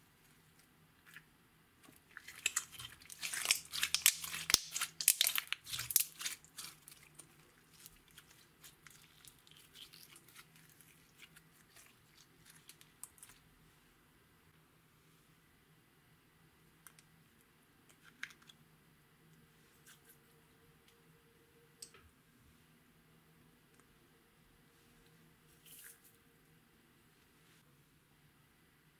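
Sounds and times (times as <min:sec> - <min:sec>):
slime crackling and popping: 0:02.2 - 0:13.3.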